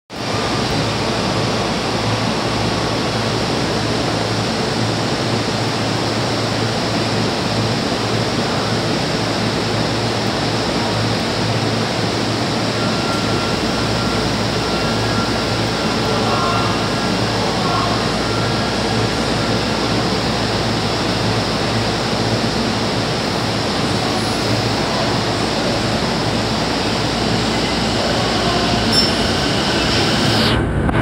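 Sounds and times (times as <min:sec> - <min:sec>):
stationary train hiss and hum: 0:00.2 - 0:31.0
thin high tone: 0:12.4 - 0:20.4, 0:24.1 - 0:30.3.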